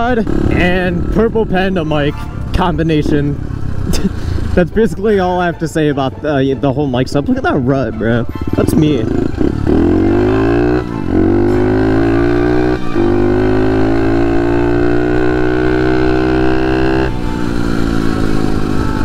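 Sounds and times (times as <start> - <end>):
motorcycle engine revving: 0.0 - 4.8, 7.9 - 19.0.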